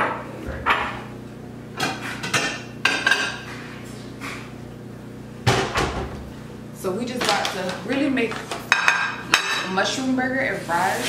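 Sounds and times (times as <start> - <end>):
dishes clinking: 1.8 - 3.6, 8.7 - 9.8.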